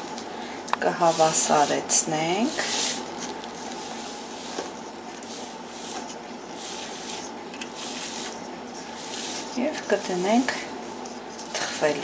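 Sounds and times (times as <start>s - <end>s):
spatula scraping batter in pan: 5.2s - 12.0s.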